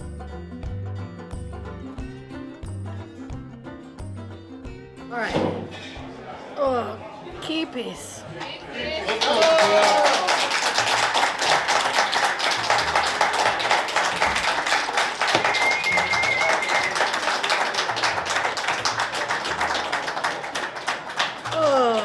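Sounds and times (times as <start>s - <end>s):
people clapping fast: 9.0s - 22.0s.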